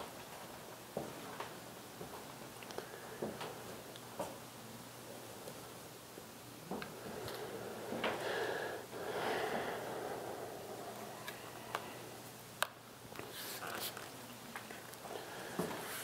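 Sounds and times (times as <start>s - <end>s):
breathing and sniffing: 7.0s - 11.1s.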